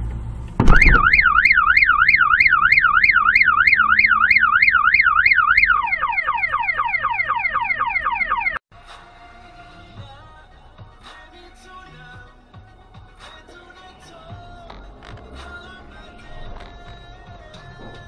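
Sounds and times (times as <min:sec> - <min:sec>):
loud bang: 0:00.6 - 0:01.4
car alarm warbling: 0:00.6 - 0:08.6.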